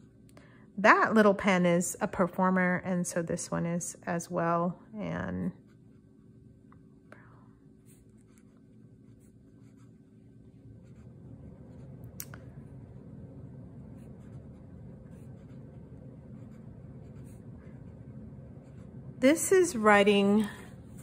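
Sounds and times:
fountain pen scratching on paper: 0:07.8 - 0:10.2, 0:10.8 - 0:12.0, 0:14.0 - 0:19.0.

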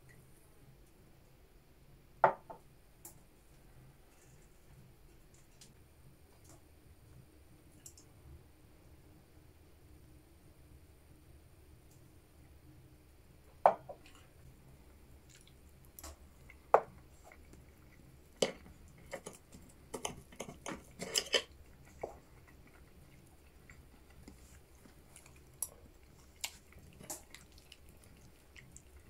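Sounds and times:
glass knocking on wooden table: 0:02.2 - 0:02.6.

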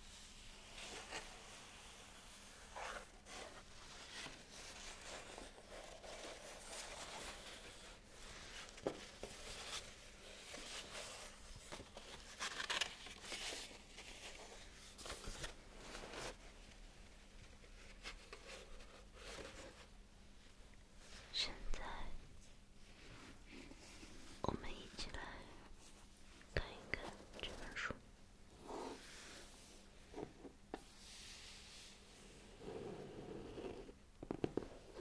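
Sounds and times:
stiff paper rustling and crinkling: 0:08.6 - 0:16.4.

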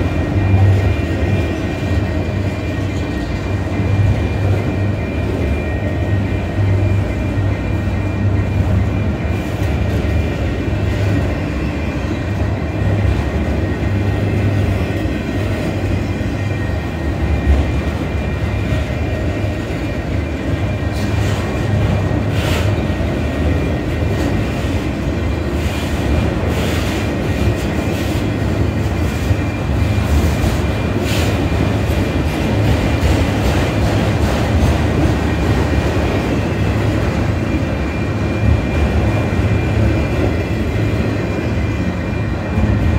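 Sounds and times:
rumble of train wheels on rails: 0:00.0 - 0:42.9.

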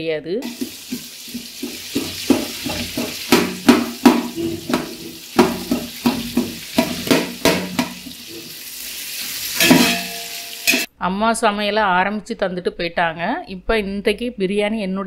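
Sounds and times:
metal spatula scraping a pot: 0:00.4 - 0:08.6
food sizzling in hot oil: 0:00.4 - 0:10.9.

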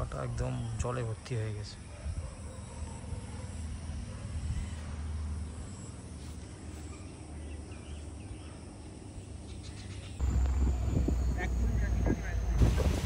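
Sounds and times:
low steady rumble: 0:10.2 - 0:13.0.

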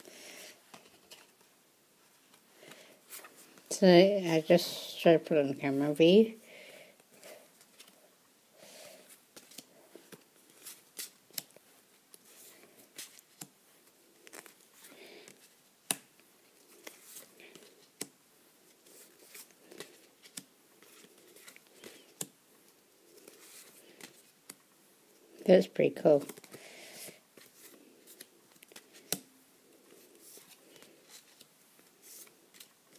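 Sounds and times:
cards sliding and rustling: 0:00.1 - 0:01.5, 0:02.2 - 0:03.7, 0:08.8 - 0:22.4, 0:23.0 - 0:24.6, 0:26.2 - 0:32.9.

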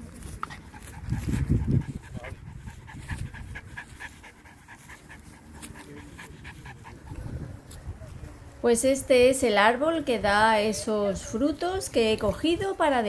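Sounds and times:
dog panting: 0:00.3 - 0:07.7.

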